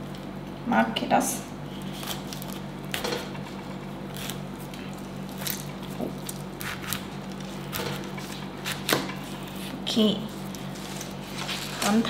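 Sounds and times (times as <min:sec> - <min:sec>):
steady low hum: 0:00.0 - 0:12.0
knife cutting pineapple: 0:04.1 - 0:09.8.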